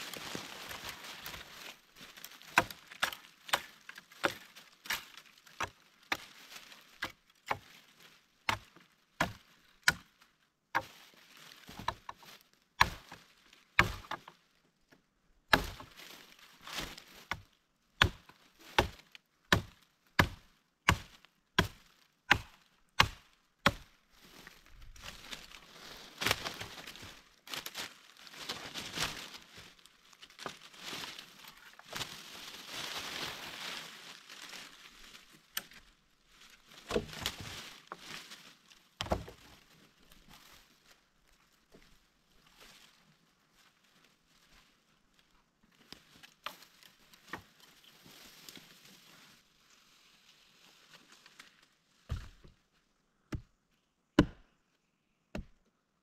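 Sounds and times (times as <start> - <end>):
wood being chopped: 2.5 - 6.3, 6.9 - 7.7, 8.5 - 10.1, 11.8 - 12.2, 12.8 - 13.2, 13.8 - 14.3, 15.5 - 15.9, 16.9 - 17.4, 18.0 - 23.9, 36.8 - 37.4, 39.0 - 39.4, 52.1 - 52.6, 54.2 - 54.5, 55.3 - 55.6
soft rustling: 24.1 - 35.5.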